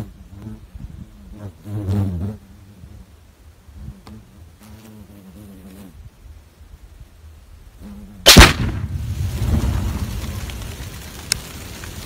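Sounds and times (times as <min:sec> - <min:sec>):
loud explosion blast: 0:08.3 - 0:10.5
rushing rumble: 0:08.3 - 0:12.0.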